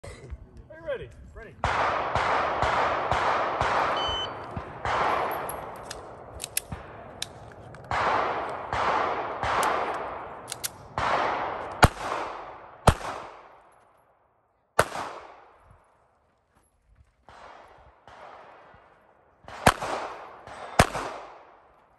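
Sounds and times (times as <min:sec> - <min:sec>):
handgun shots with ringing echo: 0:01.6 - 0:13.7, 0:19.4 - 0:21.7.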